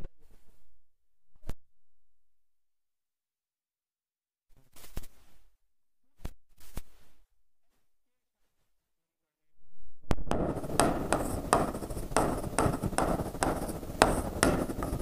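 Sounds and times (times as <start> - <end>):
stylus tapping and scraping: 10.3 - 15.0.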